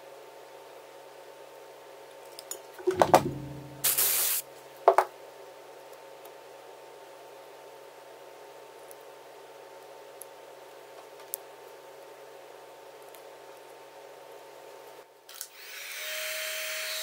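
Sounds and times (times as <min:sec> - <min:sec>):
knocks: 0:02.8 - 0:03.9
aerosol spray hiss: 0:03.9 - 0:04.4.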